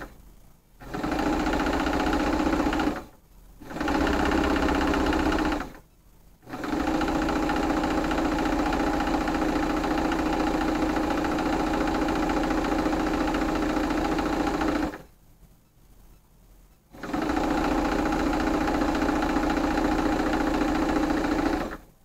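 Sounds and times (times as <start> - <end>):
sewing machine stitching: 0.8 - 5.8, 6.4 - 15.1, 16.9 - 21.9.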